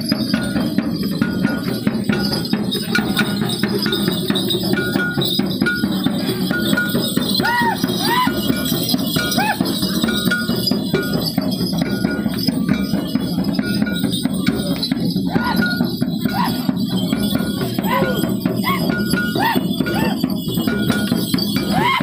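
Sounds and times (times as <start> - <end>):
ringing metallic strokes: 0.0 - 22.0
steady drumming: 0.0 - 22.0
rising and falling calls: 2.8 - 10.9, 14.1 - 22.0.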